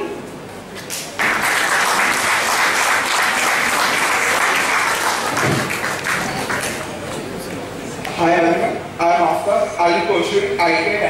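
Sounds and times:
audience clapping: 0:00.8 - 0:07.6.

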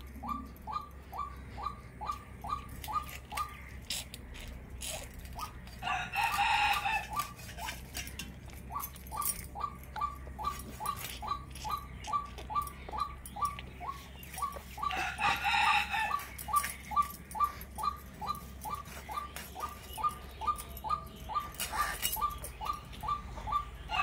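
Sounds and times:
chickens calling: 0:00.0 - 0:24.0
rooster crowing: 0:05.8 - 0:07.4, 0:14.8 - 0:16.6.

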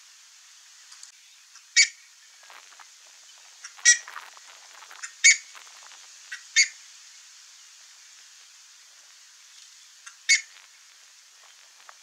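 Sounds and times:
ibis calling: 0:03.2 - 0:06.8, 0:09.5 - 0:10.8.

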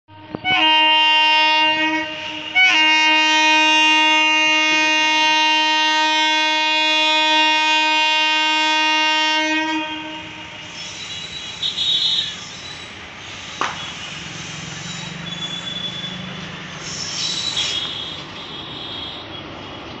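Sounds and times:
locomotive horn blasts: 0:00.3 - 0:10.8, 0:11.6 - 0:12.4.

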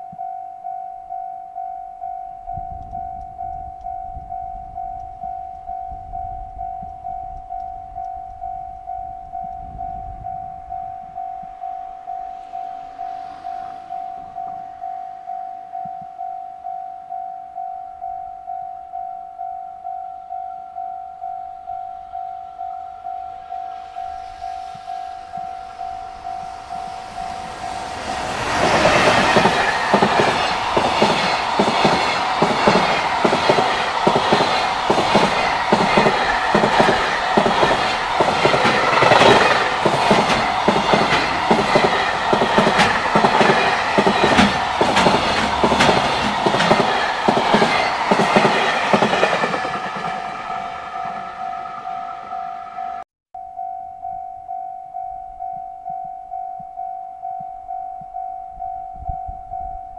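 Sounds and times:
train wheels clattering over joints: 0:27.9 - 0:50.3.

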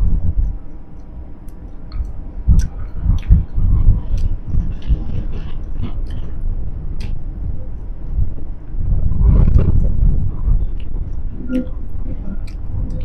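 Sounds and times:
heavy low rumble: 0:00.0 - 0:13.0.

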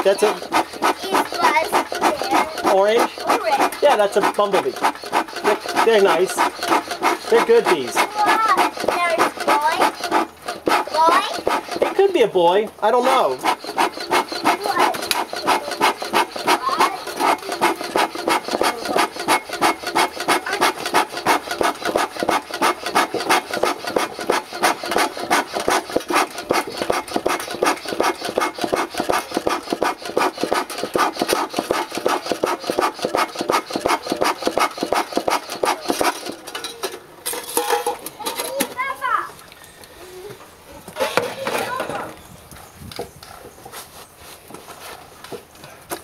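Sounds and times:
bellows puffing air: 0:13.0 - 0:36.2.

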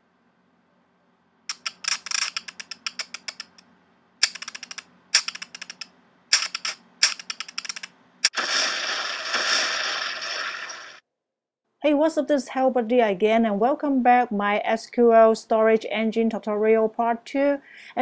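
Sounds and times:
sharp crack: 0:06.3 - 0:11.0
fiery rushing blast: 0:08.3 - 0:11.0.

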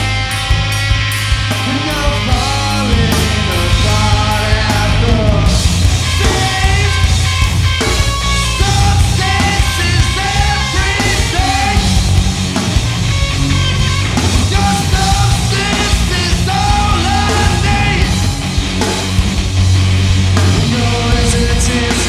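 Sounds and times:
live rock band playing: 0:00.0 - 0:22.0
man singing into microphone: 0:01.6 - 0:05.6, 0:06.2 - 0:07.1, 0:08.6 - 0:12.0, 0:14.5 - 0:18.3, 0:20.6 - 0:22.0.

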